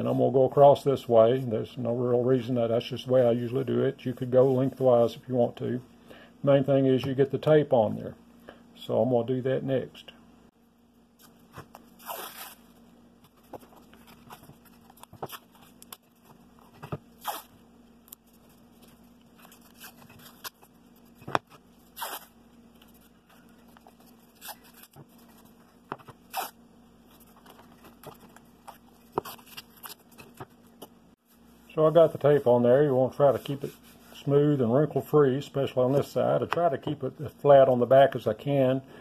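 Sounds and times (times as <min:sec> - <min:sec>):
tape ripping off roll: 0:11.9 - 0:12.6, 0:17.2 - 0:17.6, 0:21.9 - 0:22.3, 0:26.3 - 0:26.6
hands handling tape: 0:13.2 - 0:30.9.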